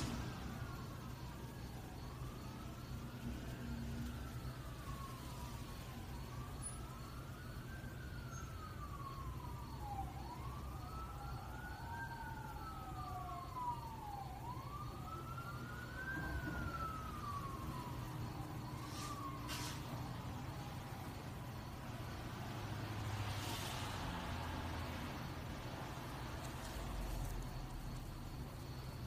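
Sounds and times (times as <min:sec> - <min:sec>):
emergency siren wailing: 0:00.0 - 0:29.0.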